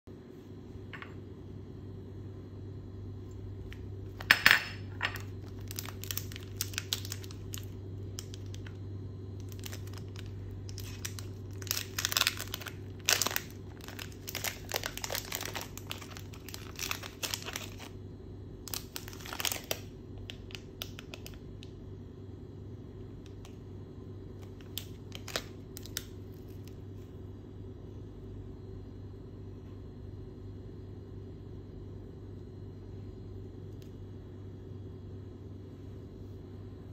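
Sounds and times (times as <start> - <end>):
steady low hum: 0.1 - 36.9
wrapper crinkling and tearing: 5.1 - 8.8, 9.4 - 17.9, 18.7 - 21.4, 24.4 - 26.8.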